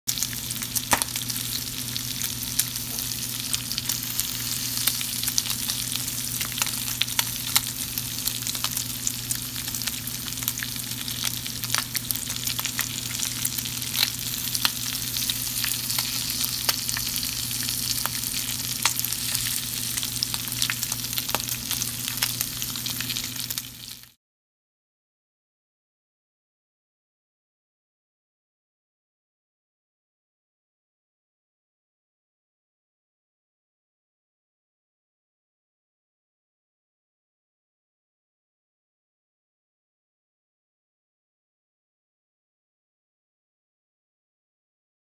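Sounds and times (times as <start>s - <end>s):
bacon sizzling in a pan: 0.1s - 24.2s.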